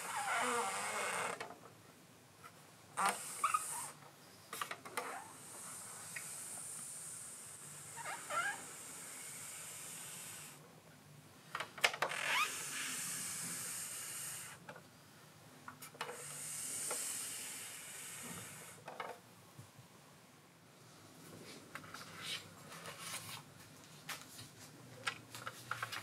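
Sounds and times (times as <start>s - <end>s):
steady background hiss: 0.0s - 26.0s.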